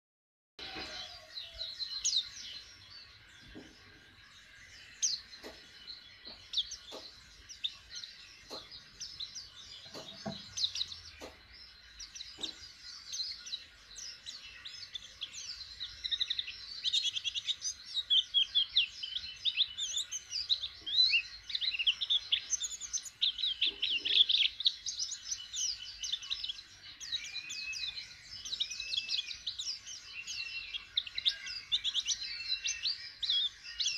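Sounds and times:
bird chirping and twittering: 0.6 - 33.9
soft knocks: 9.8 - 10.5.

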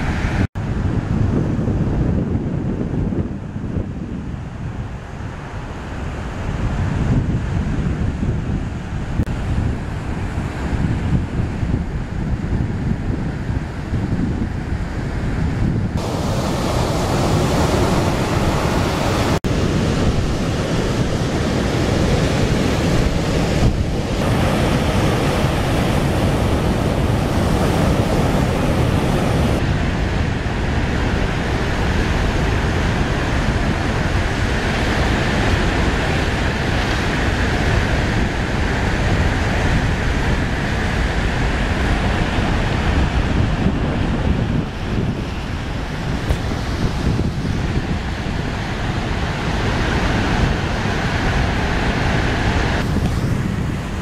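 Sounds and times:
surf crashing on shore: 0.0 - 54.0
wind buffeting microphone: 0.0 - 54.0.

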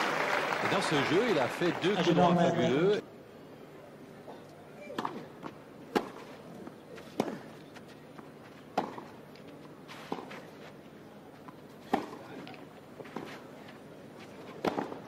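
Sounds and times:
tennis ball struck by rackets: 5.9 - 6.2, 7.2 - 7.4, 8.8 - 9.1, 11.9 - 12.2, 14.6 - 15.0.

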